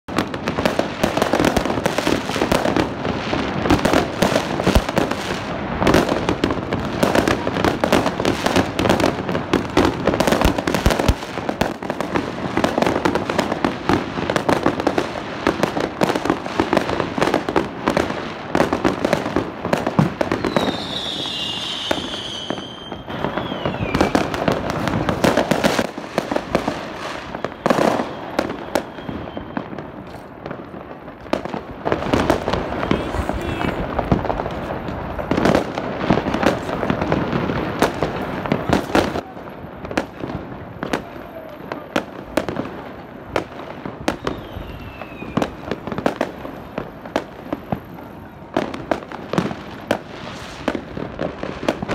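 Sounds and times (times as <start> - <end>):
fireworks bangs and crackles: 0.1 - 51.9
high whistle sliding down: 20.5 - 24.2, 27.4 - 29.8, 44.2 - 45.4.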